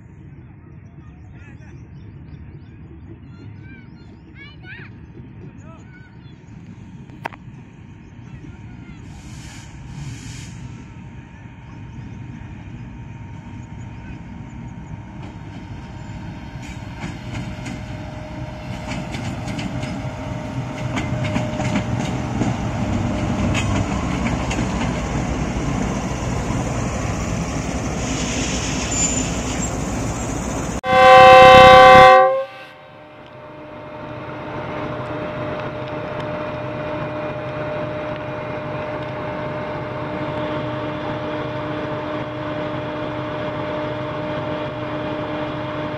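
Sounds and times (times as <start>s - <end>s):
diesel locomotive engine rumble: 0.0s - 45.9s
train wheels clicking over rails: 15.1s - 30.7s
loud train horn blast: 30.8s - 33.1s.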